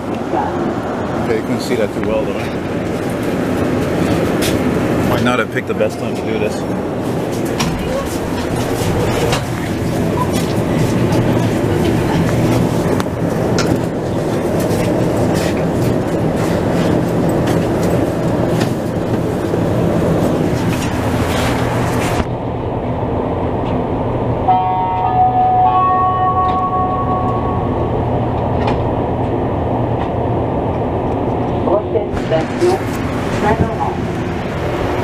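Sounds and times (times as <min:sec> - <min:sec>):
train rolling into station: 0:00.0 - 0:35.0
door-closing chime: 0:24.8 - 0:27.8.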